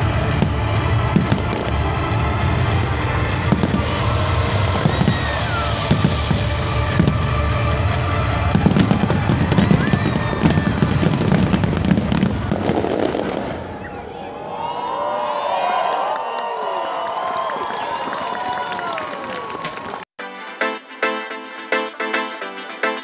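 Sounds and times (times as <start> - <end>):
music playing: 0.0 - 12.2, 20.2 - 23.0
fireworks bangs and crackles: 0.0 - 14.0.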